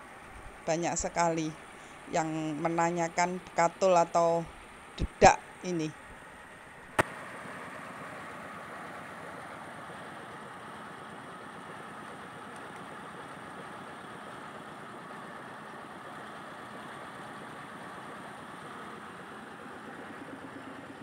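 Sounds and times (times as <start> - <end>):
rice milling machine running: 6.9 - 21.0.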